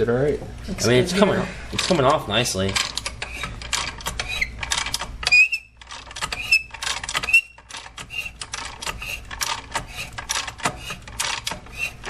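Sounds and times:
ratchet wrench clicking: 2.8s - 11.9s
high metal squeaks: 3.2s - 12.0s.

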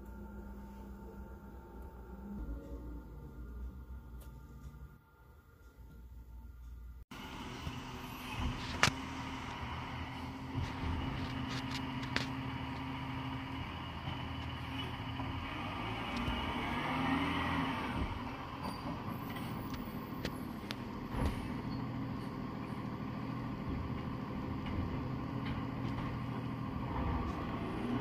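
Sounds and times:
rising engine whine: 0.0s - 5.6s, 6.9s - 28.0s
garbage truck engine running: 7.1s - 28.0s.

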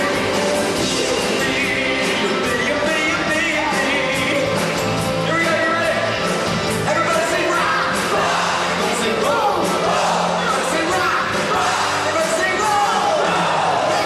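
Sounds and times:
live rock band playing: 0.0s - 13.1s
man singing into a microphone: 0.9s - 6.1s.

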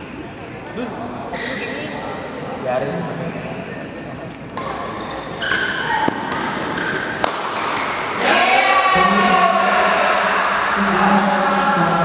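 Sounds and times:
badminton rackets hitting shuttlecock: 4.6s - 8.4s
voices shouting: 8.1s - 11.6s.

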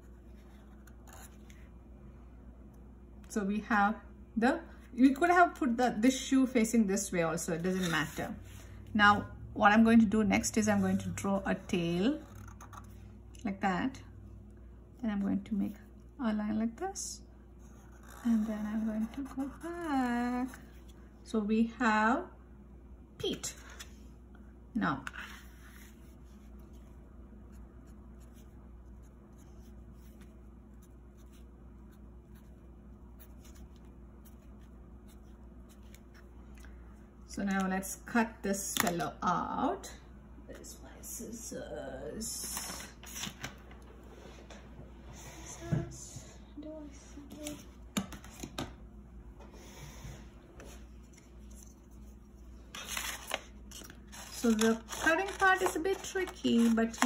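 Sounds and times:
paper rustling and scraping: 7.6s - 8.8s, 50.6s - 57.0s.

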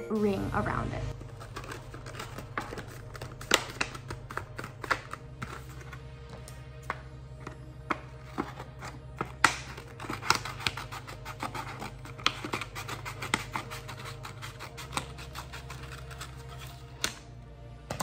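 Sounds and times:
scissors snipping paper: 1.2s - 5.6s, 8.3s - 17.2s.

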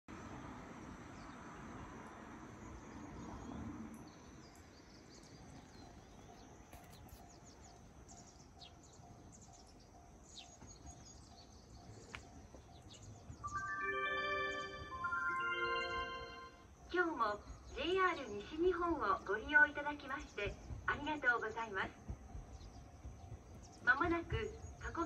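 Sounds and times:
low steady background noise: 0.1s - 25.0s
small birds chirping: 2.6s - 13.8s, 16.8s - 25.0s.

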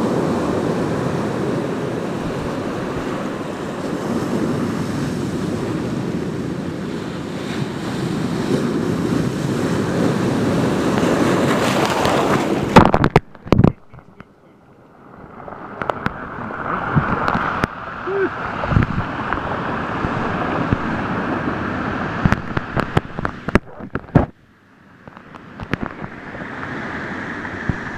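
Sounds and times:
ocean surf crashing over rocks: 0.0s - 27.9s
camera handling knocks and rubs: 25.1s - 26.1s.

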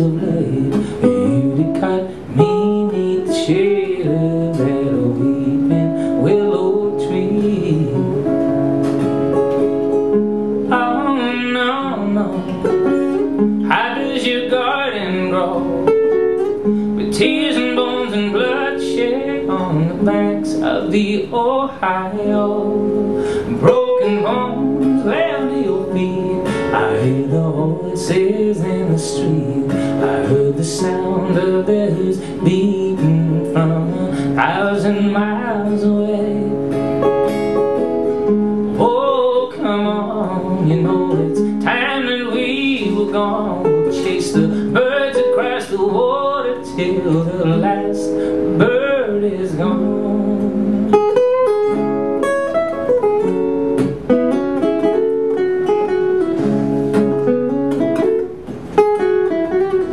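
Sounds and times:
man singing: 0.0s - 8.5s, 10.6s - 36.9s, 38.6s - 51.3s
acoustic guitar: 0.0s - 59.9s.

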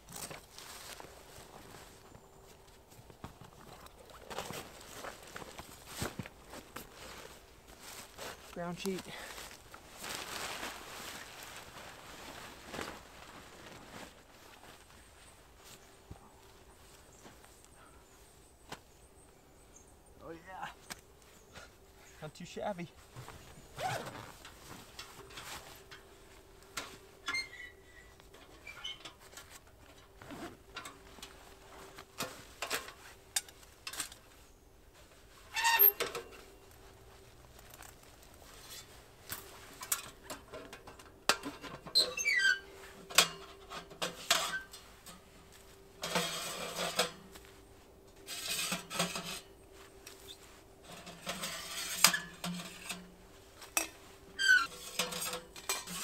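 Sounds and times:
bag and dry leaves rustling: 4.3s - 15.9s
metal-on-metal scrapes: 41.6s - 45.2s, 46.0s - 47.2s, 48.2s - 49.5s, 50.3s - 53.1s, 53.7s - 56.0s.

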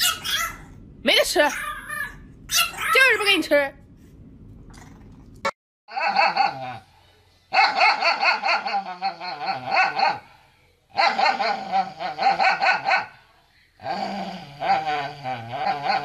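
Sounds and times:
dog barking and howling: 0.0s - 0.7s, 5.9s - 6.8s, 7.5s - 10.3s, 10.9s - 13.2s.

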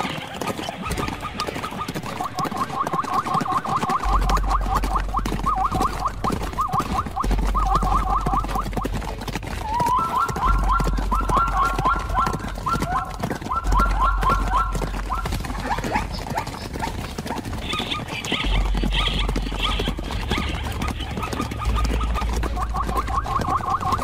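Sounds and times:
high yelping animal calls: 0.0s - 24.0s
fainter higher calls: 1.2s - 8.9s, 9.6s - 15.5s.

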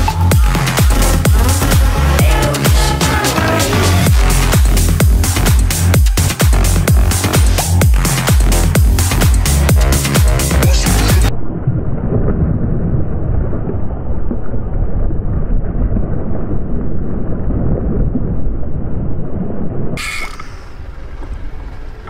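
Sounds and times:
fishing reel drag buzzing: 20.0s - 20.8s.

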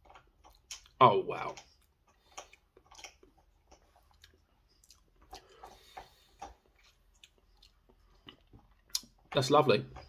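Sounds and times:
mouth clicks and lip smacks: 0.0s - 9.4s.

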